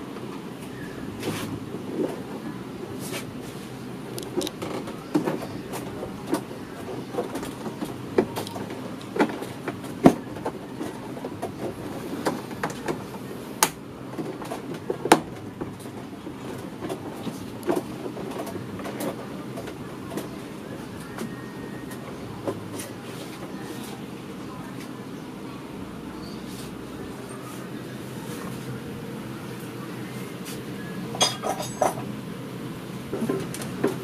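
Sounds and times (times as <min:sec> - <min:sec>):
low background noise: 0:00.0 - 0:34.0.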